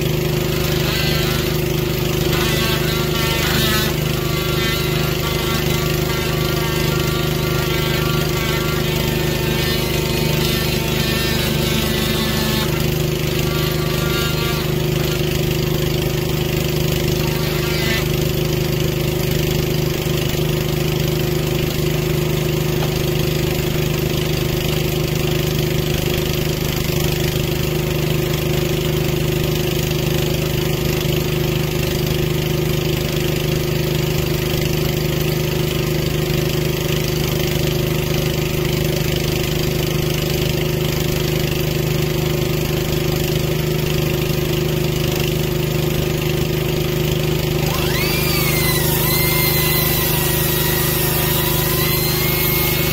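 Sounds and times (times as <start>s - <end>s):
small engine idling: 0.0s - 52.9s
high whine: 0.5s - 15.4s, 47.5s - 52.9s.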